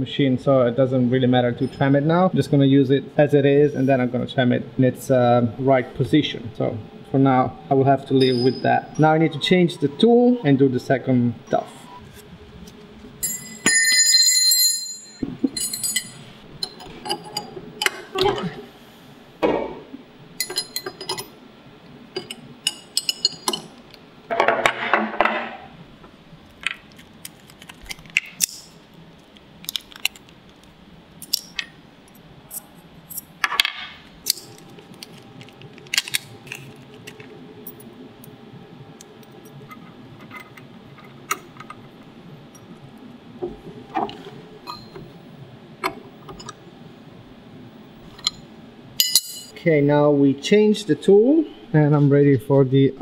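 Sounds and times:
metal tools clinking and tapping: 8.2 - 8.7, 13.2 - 18.0, 20.4 - 21.3, 22.2 - 23.7, 44.7 - 45.0, 49.0 - 49.6.

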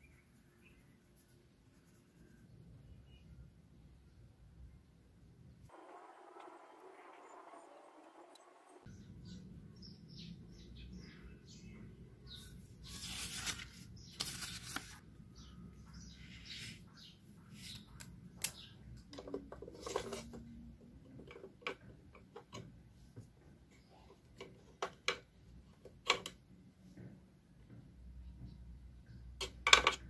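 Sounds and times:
paper rustling: 12.8 - 15.0.

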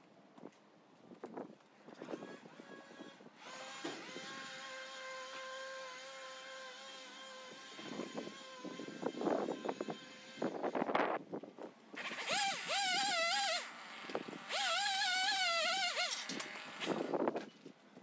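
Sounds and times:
chainsaw revving: 3.4 - 8.4, 12.0 - 17.2.

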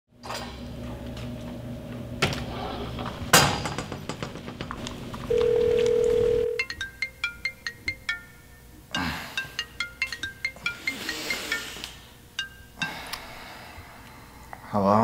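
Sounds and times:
steady background hum: 0.1 - 15.0
loud steady tone: 5.3 - 6.6
smartphone alarm tune: 5.3 - 8.3.

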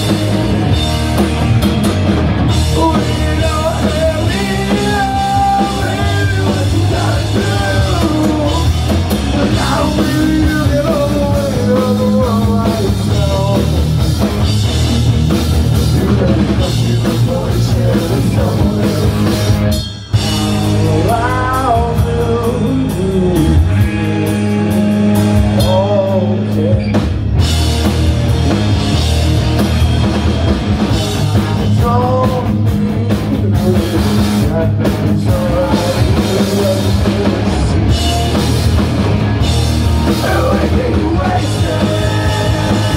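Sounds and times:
punk rock band playing live: 0.0 - 42.9
sung vocals: 2.5 - 14.0, 15.7 - 27.4, 31.0 - 38.6, 39.4 - 42.9.

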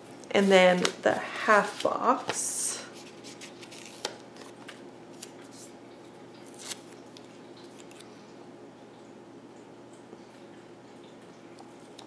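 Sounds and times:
paper sticker rustling: 3.0 - 5.7.

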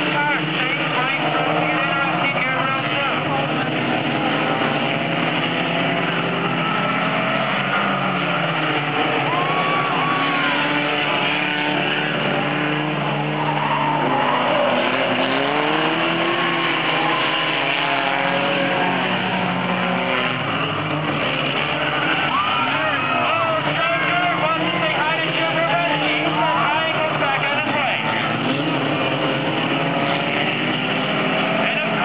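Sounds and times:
race car engines revving: 0.0 - 32.0
tires squealing: 0.0 - 32.0.

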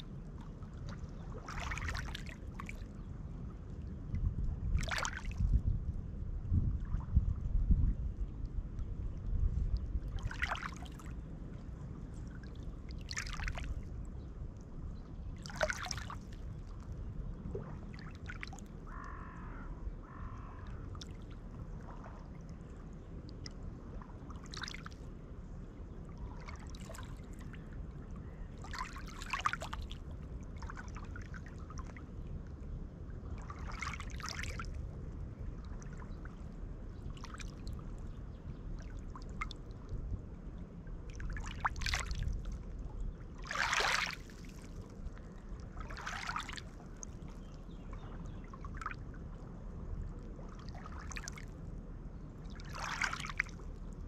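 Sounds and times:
steady low rumble: 0.0 - 54.0.

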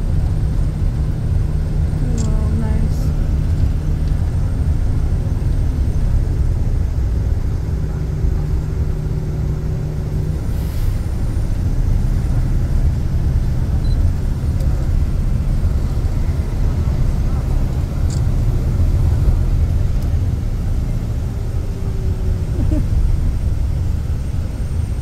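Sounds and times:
engine hum: 0.0 - 25.0
vehicle engine and tyres rumbling: 0.0 - 25.0.

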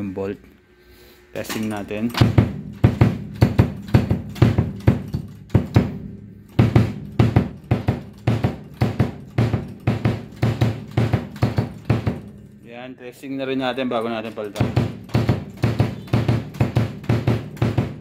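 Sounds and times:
bass drum kicks: 2.2 - 12.2.

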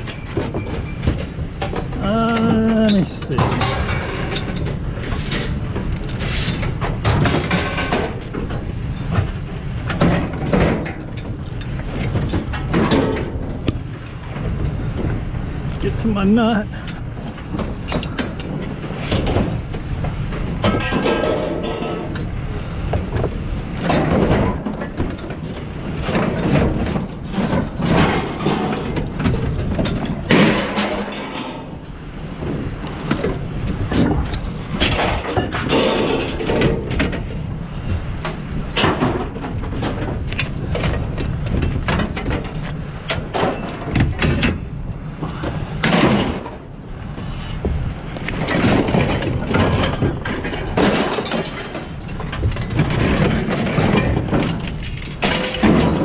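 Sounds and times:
scrap metal clanking: 26.0 - 31.8, 33.9 - 37.5.

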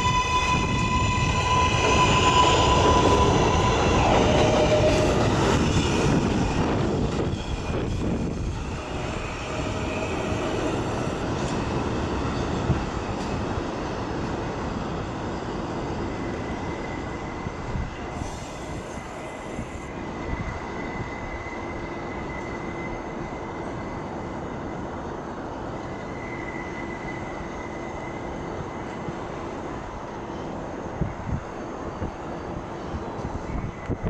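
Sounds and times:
high-pitched squeal: 0.0 - 11.3, 16.2 - 24.2
subway train rumble: 0.0 - 34.0.

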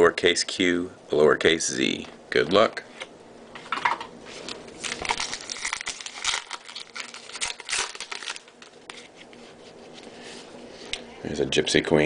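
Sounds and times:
wrapper crinkling and tearing: 4.7 - 9.1.

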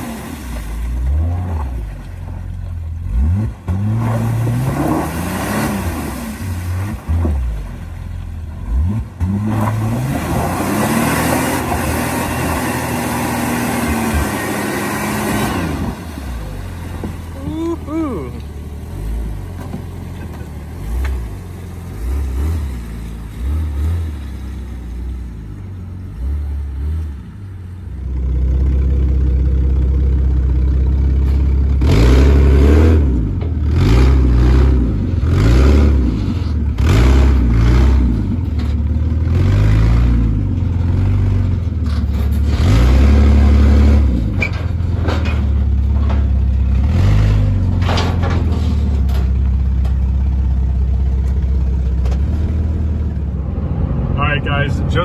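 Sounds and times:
loud engine revving without muffler: 3.0 - 7.2, 8.6 - 16.0, 31.8 - 38.4, 42.4 - 44.4.

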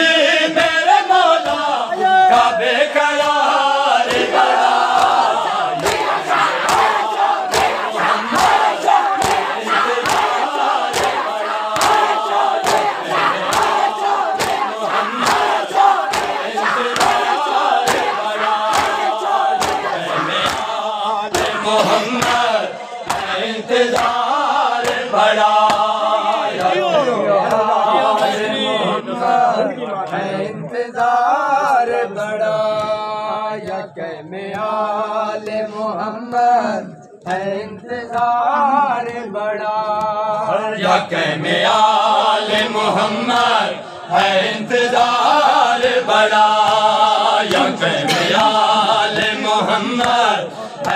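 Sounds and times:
men chanting a lament: 0.0 - 50.9
hands slapping on chests: 1.4 - 1.8, 3.2 - 26.8, 33.6 - 33.9, 42.5 - 43.6, 45.8 - 50.9.

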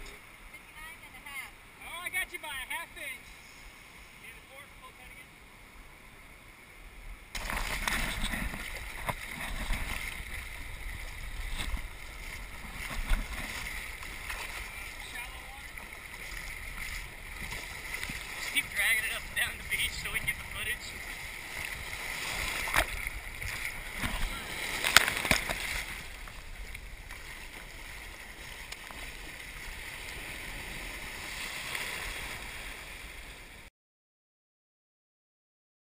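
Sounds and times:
surf washing and splashing: 0.0 - 33.7
water buffeting microphone: 0.0 - 33.7.

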